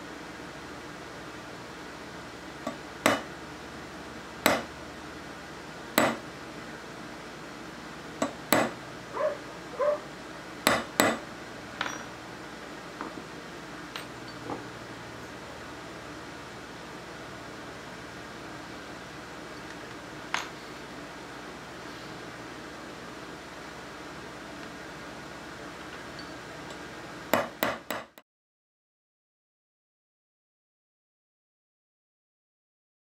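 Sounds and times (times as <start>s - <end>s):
hammer striking steel punch: 2.7s - 3.3s, 4.5s - 4.7s, 6.0s - 6.2s, 8.2s - 8.8s, 10.7s - 11.2s, 27.4s - 28.2s.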